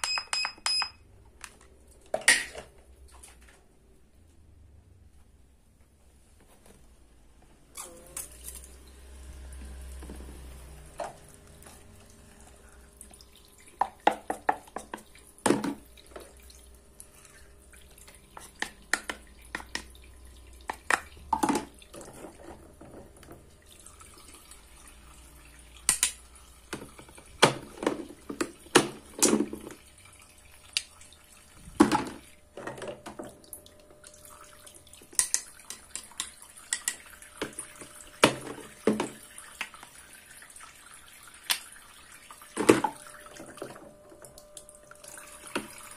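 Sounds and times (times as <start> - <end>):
faucet trickling water: 8.3 - 22.5, 23.4 - 27.4, 33.4 - 45.9.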